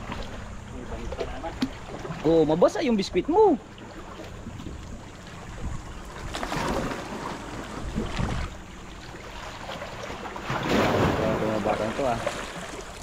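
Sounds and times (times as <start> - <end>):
water splashing and sloshing: 0.0 - 13.0
wind buffeting microphone: 4.4 - 6.9, 7.7 - 8.6.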